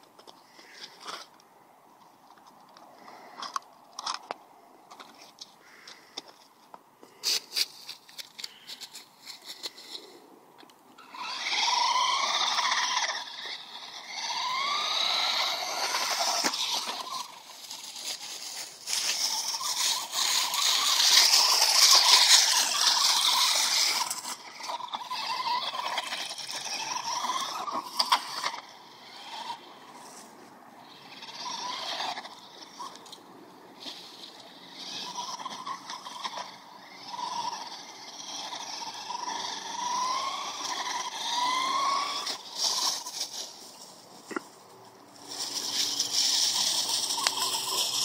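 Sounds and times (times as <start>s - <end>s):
rc truck motor whining: 11.0s - 43.7s, 45.1s - 48.0s.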